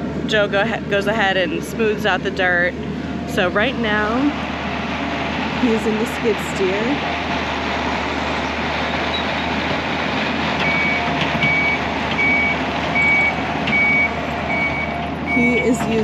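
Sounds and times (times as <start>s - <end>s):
skid steer engine running: 0.0s - 16.0s
backup alarm beeping: 10.6s - 16.0s.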